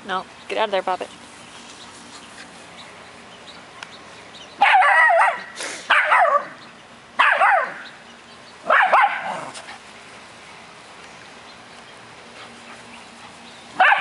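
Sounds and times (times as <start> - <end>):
dogs play-barking: 4.6 - 8.0, 8.6 - 9.9, 12.3 - 14.0.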